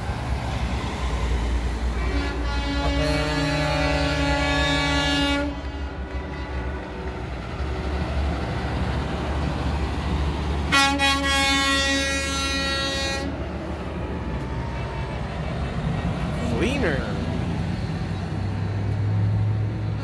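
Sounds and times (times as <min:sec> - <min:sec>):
trucks driving past: 0:00.0 - 0:20.0
multi-tone air horn blast: 0:01.9 - 0:06.6, 0:10.7 - 0:13.4.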